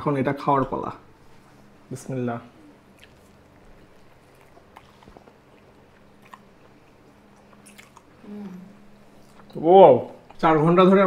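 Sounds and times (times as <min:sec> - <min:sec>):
person chewing food: 0:02.5 - 0:10.4.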